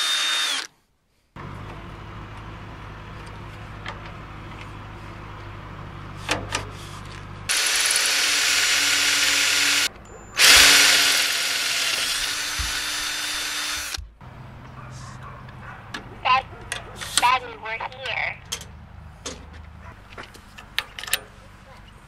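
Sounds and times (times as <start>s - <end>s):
drill boring through metal: 0.0s - 0.7s, 7.5s - 14.0s.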